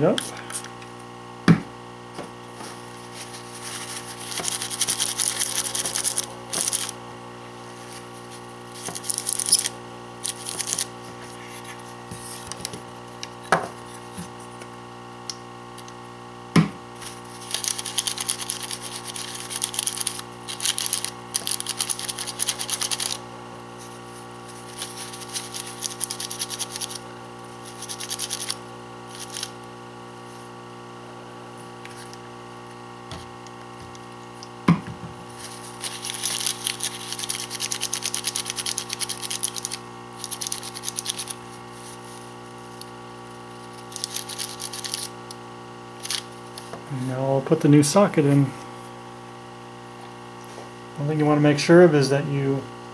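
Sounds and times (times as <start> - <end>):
background hum: 0.0 - 52.9
paper wipe scrubbing circuit board: 2.7 - 7.0, 7.7 - 12.6, 17.0 - 23.2, 23.8 - 29.5, 35.4 - 42.7, 43.6 - 45.1.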